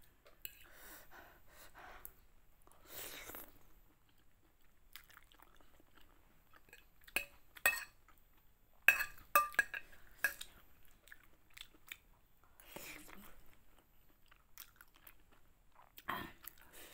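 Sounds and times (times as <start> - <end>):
fork clinking on a plate: 7.2 - 8.0, 8.9 - 10.4.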